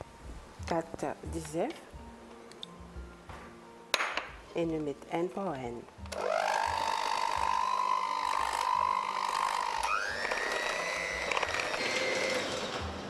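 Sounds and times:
electric hand mixer whining: 6.1 - 13.0.

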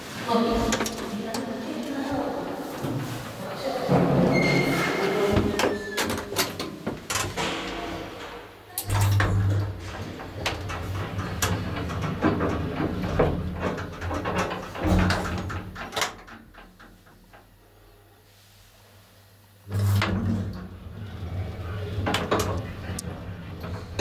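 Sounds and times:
elevator clicks and clunks: 0.5 - 1.6, 3.9 - 17.6, 19.7 - 24.0.

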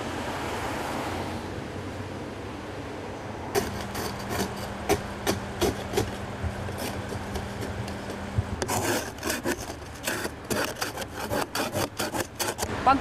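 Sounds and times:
ice scraper scraping car window: 3.6 - 12.7.

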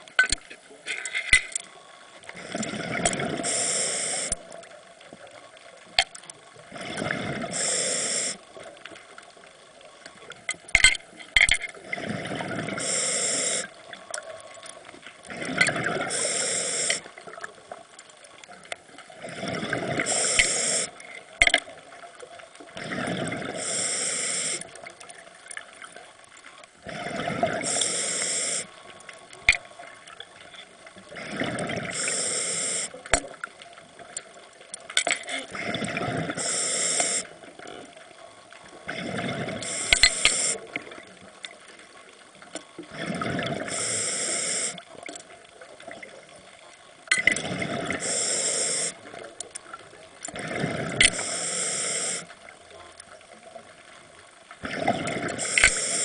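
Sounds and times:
exhaled bubbles gurgling: 2.3 - 4.7, 6.5 - 8.8, 11.8 - 17.8, 19.0 - 21.1, 21.8 - 26.0, 26.8 - 30.1, 31.0 - 34.0, 35.3 - 41.8, 42.8 - 45.0, 47.1 - 49.4, 50.3 - 52.3, 54.6 - 56.0
diver breathing through regulator: 3.3 - 4.4, 7.4 - 8.4, 12.7 - 13.7, 15.9 - 17.0, 19.4 - 21.0, 23.5 - 24.7, 26.9 - 28.8, 31.2 - 33.0, 35.4 - 37.3, 38.9 - 40.7, 43.6 - 44.8, 47.8 - 49.0, 50.8 - 52.4, 54.8 - 56.0.

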